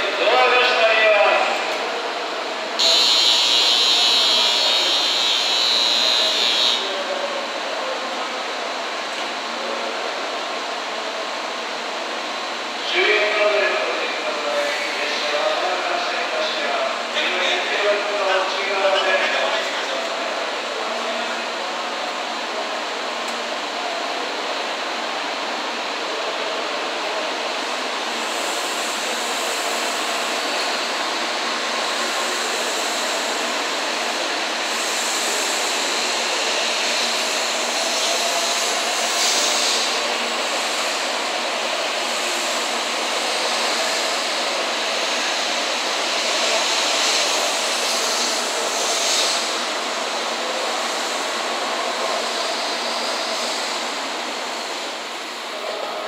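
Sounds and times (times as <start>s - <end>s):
train wheel and air rush: 19.7s - 56.0s.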